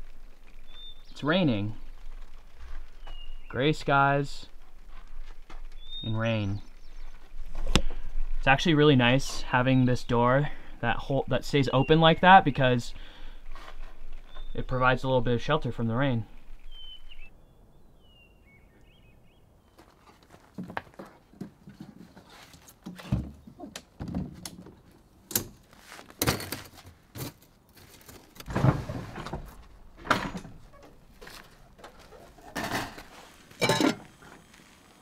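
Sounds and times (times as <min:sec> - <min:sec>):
camp table and stove knocks and clatters: 0:20.5 - 0:34.5.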